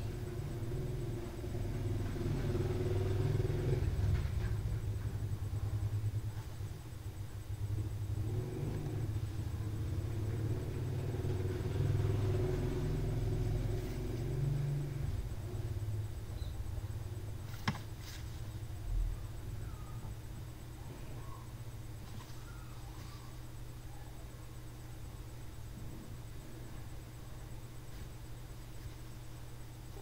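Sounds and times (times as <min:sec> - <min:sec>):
vehicle engine rumble: 0:00.0 - 0:21.3.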